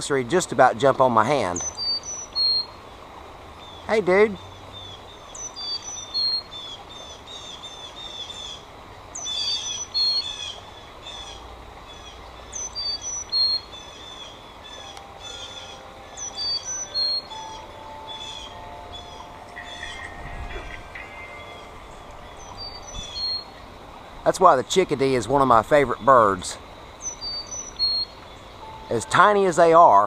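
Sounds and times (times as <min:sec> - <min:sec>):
chickadees calling: 0:01.3 - 0:02.9, 0:03.5 - 0:30.0.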